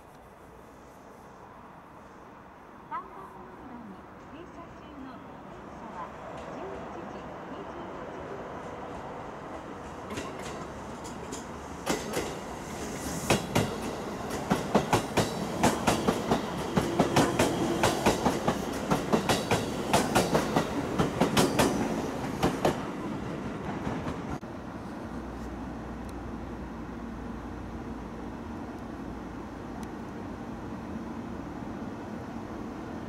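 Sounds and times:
train wheels clacking over rail joints: 9.9s - 12.5s, 13.2s - 22.9s.

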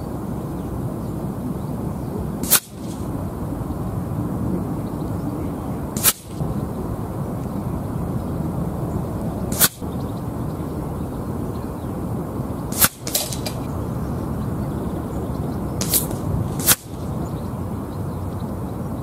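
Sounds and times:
wind rumble on microphone: 0.0s - 19.0s
air rifle shots: 2.4s - 3.2s, 6.0s - 6.4s, 9.5s - 10.0s, 12.7s - 13.7s, 15.8s - 17.2s.

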